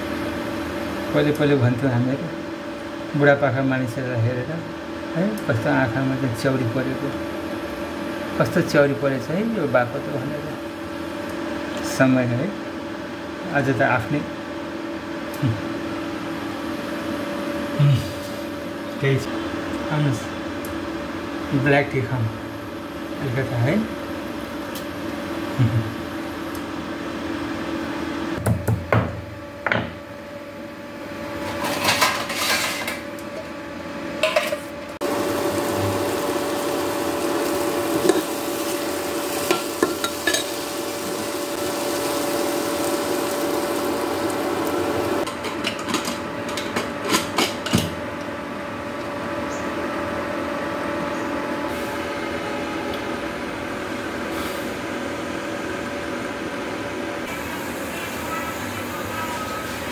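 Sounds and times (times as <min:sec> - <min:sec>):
steady hum: 0:32.8 - 0:59.9
vegetables frying in oil: 0:35.0 - 0:45.3.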